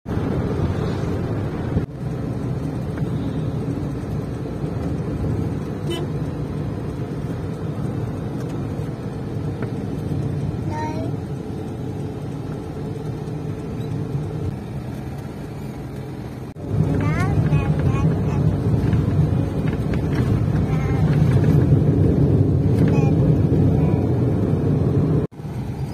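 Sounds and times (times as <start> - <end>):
road and engine rumble inside car: 0.1 - 25.9
car horn toot: 5.8 - 6.1.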